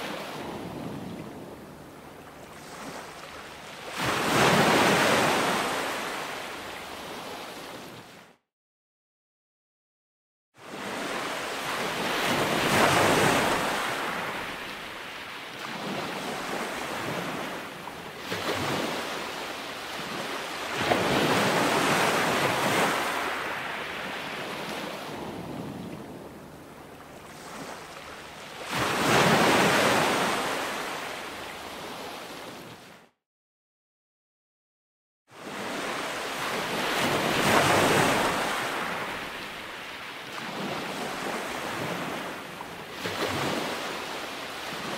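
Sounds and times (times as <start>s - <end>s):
ocean waves washing: 10.6s - 32.8s, 35.3s - 44.9s.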